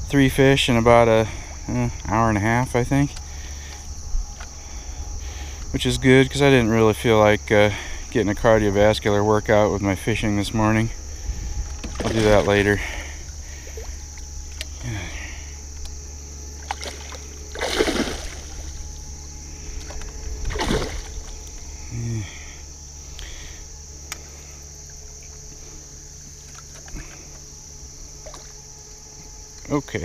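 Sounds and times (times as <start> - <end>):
fish splashing in water: 16.5 - 21.6, 28.2 - 28.6.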